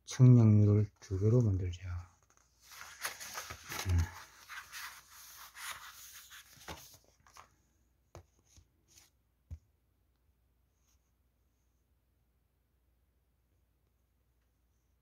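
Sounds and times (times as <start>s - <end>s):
book pages rustling: 2.2s - 7.6s
soft page flicks and taps: 6.4s - 7.5s.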